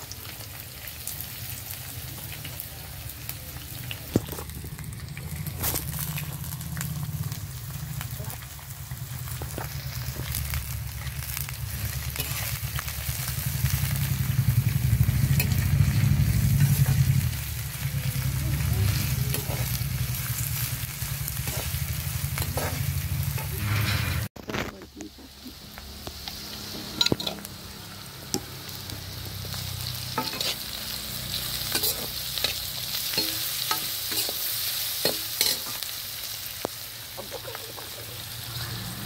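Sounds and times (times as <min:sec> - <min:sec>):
vegetables sizzling in hot oil: 0:00.0 - 0:39.0
low rumble: 0:03.9 - 0:24.3
spatula scraping metal pan: 0:21.4 - 0:24.3, 0:30.2 - 0:30.7, 0:31.6 - 0:34.4.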